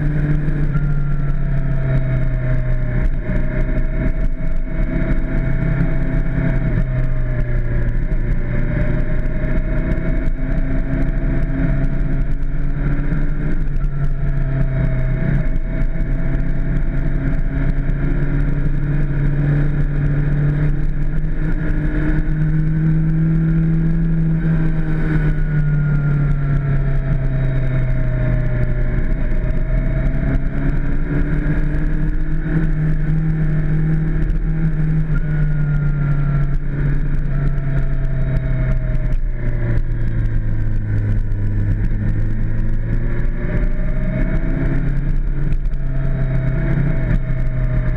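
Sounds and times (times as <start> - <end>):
motorcycle engine running: 0.0 - 47.9.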